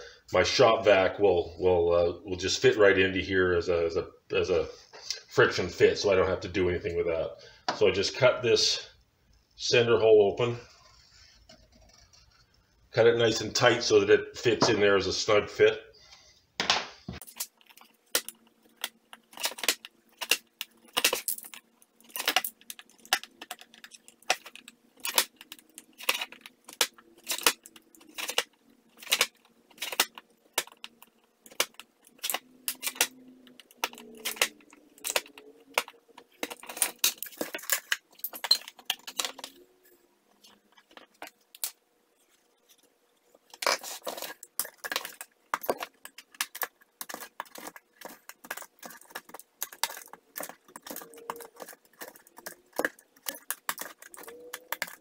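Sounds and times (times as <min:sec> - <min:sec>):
knife scraping plastic: 0:17.2 - 0:39.7, 0:40.4 - 0:55.0.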